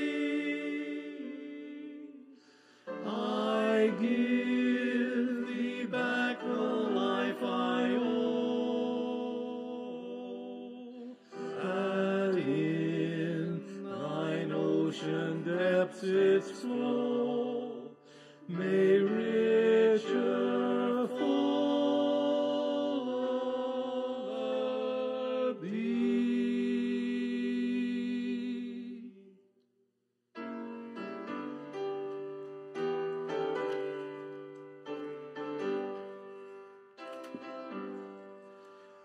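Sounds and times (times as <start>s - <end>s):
piano: 0.0s - 29.2s, 30.4s - 39.0s
vocal quartet singing in harmony: 0.0s - 29.4s.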